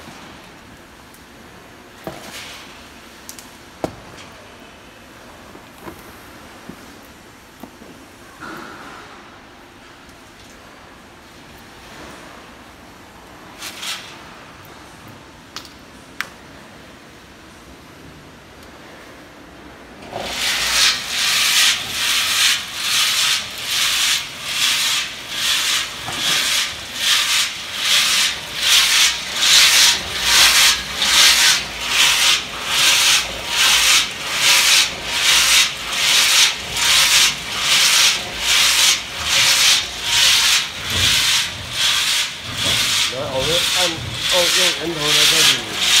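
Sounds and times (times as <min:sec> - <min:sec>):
tea leaves swishing in a drum: 0:20.1 - 0:46.0.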